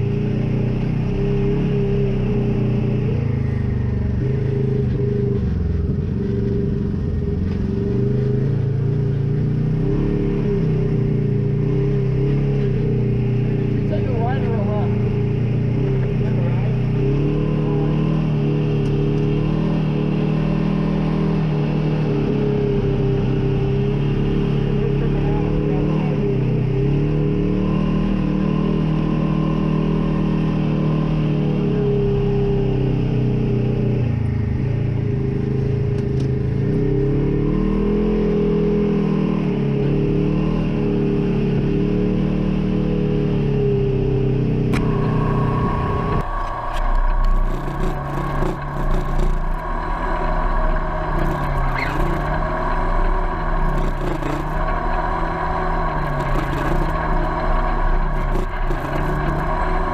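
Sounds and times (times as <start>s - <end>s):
engine revving: 0.0s - 59.9s
rattles: 44.8s - 59.9s.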